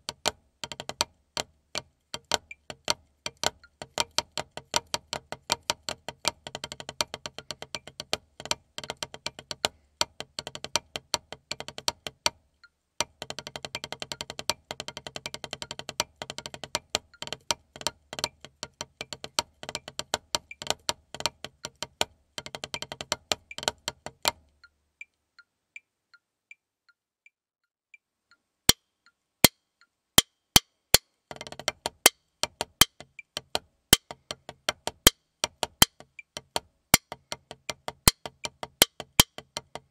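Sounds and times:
faint regular ticks: 0:00.0 - 0:39.9
drumsticks on practice pad: 0:28.7 - 0:39.9.

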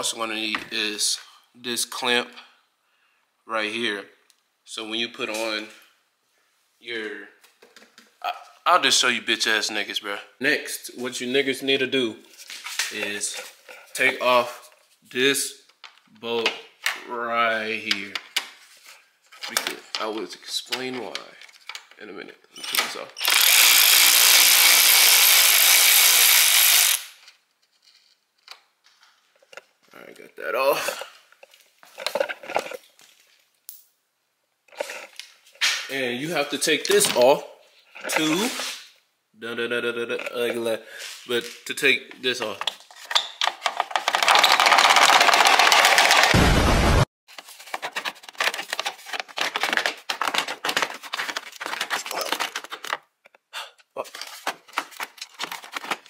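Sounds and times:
power tool running: 0:23.2 - 0:27.1
tools and parts clattering: 0:30.8 - 0:33.0, 0:42.5 - 0:46.3, 0:47.3 - 0:53.0, 0:54.1 - 0:56.0.

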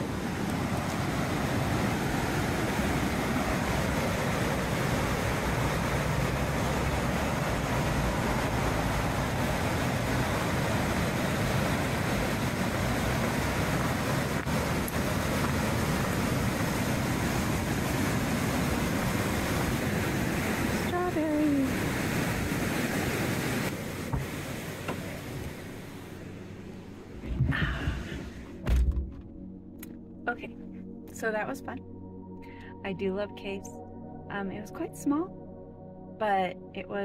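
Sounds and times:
whitewater river rushing: 0:00.0 - 0:26.4.

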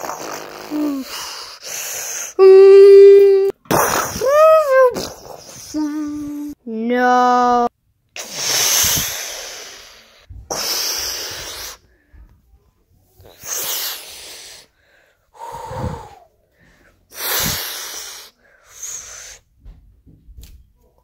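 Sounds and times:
child making hissing mouth sounds: 0:00.0 - 0:06.6, 0:07.2 - 0:11.9, 0:13.2 - 0:14.8, 0:15.4 - 0:16.3, 0:17.1 - 0:19.5.

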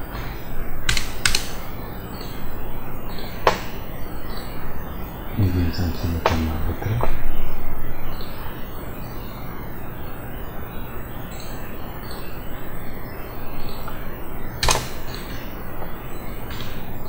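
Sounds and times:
background hiss: 0:00.0 - 0:17.0
computer mouse click: 0:00.9 - 0:01.6
low hum: 0:03.9 - 0:10.1.

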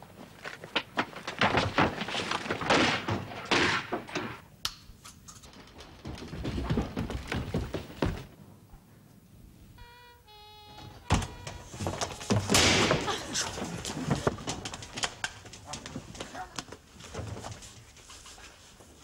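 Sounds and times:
heavy thuds and knocks: 0:05.7 - 0:08.3
sharp crack: 0:12.5 - 0:13.4.

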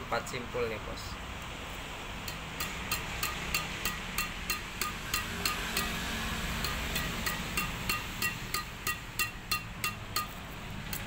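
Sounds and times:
racket strings pinging: 0:02.2 - 0:11.0.

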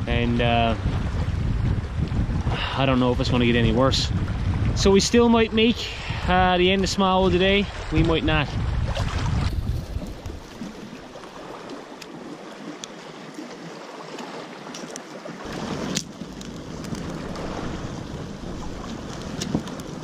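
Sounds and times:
wind rumbling on microphone: 0:00.0 - 0:12.5, 0:14.9 - 0:20.0
wind: 0:00.0 - 0:20.0
lake waves lapping: 0:00.7 - 0:20.0
small fire crackling: 0:14.8 - 0:20.0.

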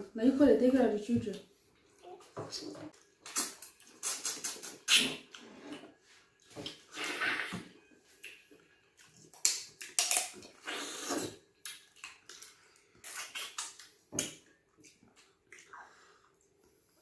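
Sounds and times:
lip smacks: 0:03.2 - 0:05.4, 0:09.4 - 0:15.9
slurping: 0:06.7 - 0:07.8, 0:10.5 - 0:11.4.

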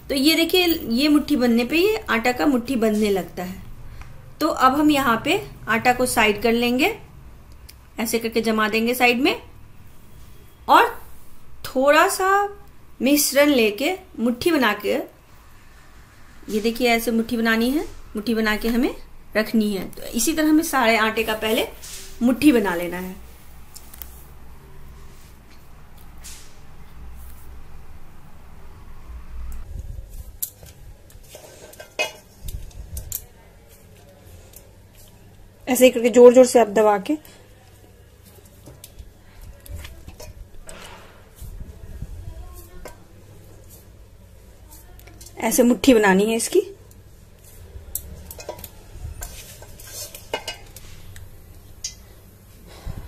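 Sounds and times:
hands squeezing dough: 0:37.2 - 0:45.6.

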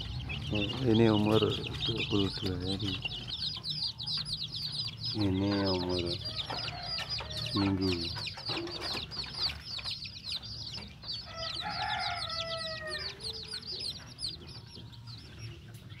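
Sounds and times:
chicks peeping: 0:00.0 - 0:16.0.

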